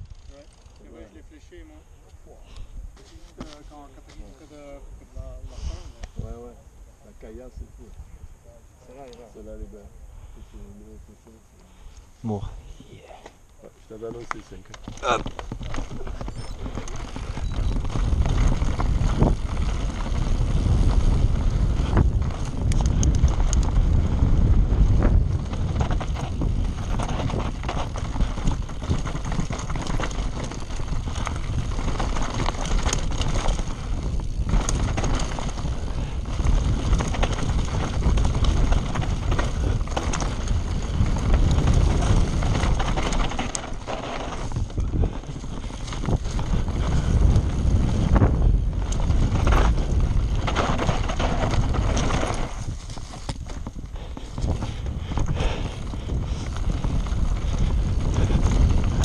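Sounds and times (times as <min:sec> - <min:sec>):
bike tyres rumbling: 0:00.0 - 0:07.5, 0:08.9 - 0:59.0
bike clattering on stones: 0:14.0 - 0:59.0
wind buffeting microphone: 0:14.0 - 0:59.0.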